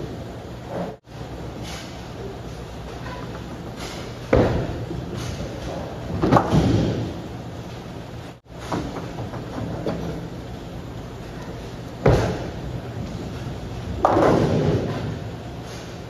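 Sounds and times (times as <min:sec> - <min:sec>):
bowling alley hum: 0:00.0 - 0:16.0
bowling pins crashing: 0:04.3 - 0:07.3, 0:12.0 - 0:15.3.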